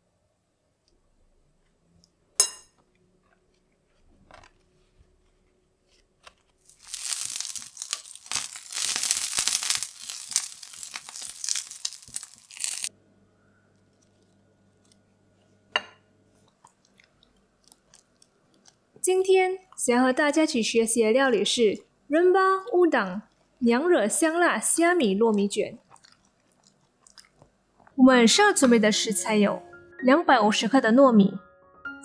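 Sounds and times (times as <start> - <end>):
rice rolls sizzling in pan: 6.7 - 12.9.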